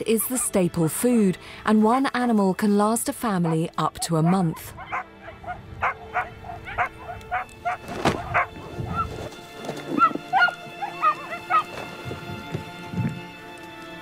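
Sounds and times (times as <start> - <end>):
dog barking: 3.4 - 9.0, 10.0 - 11.7
dog yelping: 3.4 - 9.1, 10.0 - 11.7.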